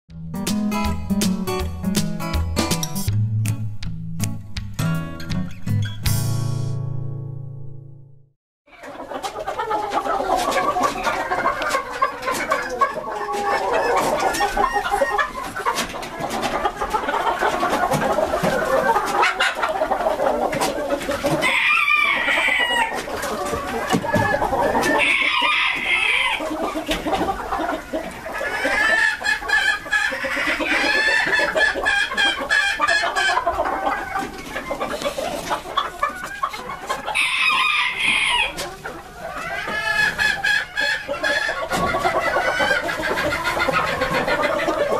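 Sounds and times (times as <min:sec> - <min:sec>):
chickens clucking: 0:08.7 - 0:44.9
roosters crowing: 0:21.3 - 0:26.6, 0:28.4 - 0:34.6, 0:36.6 - 0:44.9.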